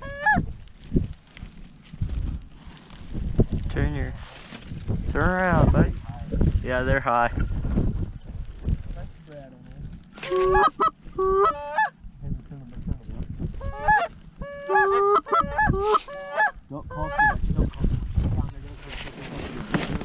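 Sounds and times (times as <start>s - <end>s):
goose honking and clucking: 0.0s - 0.5s, 10.2s - 12.0s, 13.6s - 17.5s.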